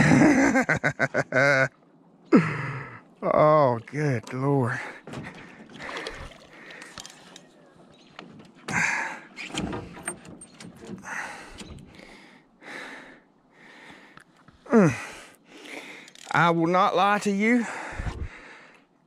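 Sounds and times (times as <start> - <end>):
heavy breathing in short bursts: 11.0 - 16.2, 17.6 - 18.9.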